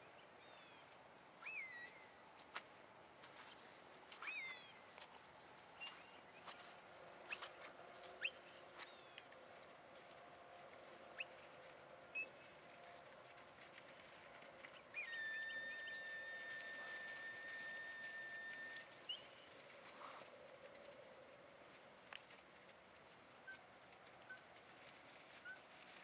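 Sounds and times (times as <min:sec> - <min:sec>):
birds chirping and whistling: 0:15.0 - 0:17.9
steady high whistle tone: 0:15.0 - 0:19.4.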